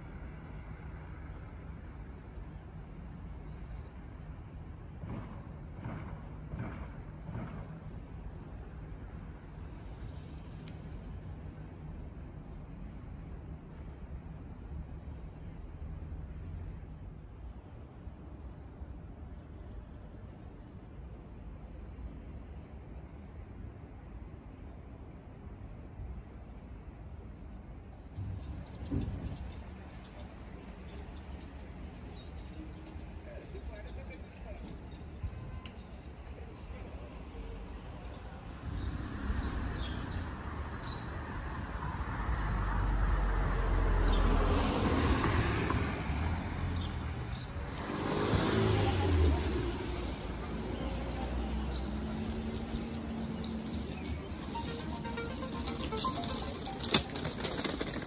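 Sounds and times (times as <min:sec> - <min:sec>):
vehicle passing: 0:42.0 - 0:58.0
short high chirps: 0:54.3 - 0:57.5.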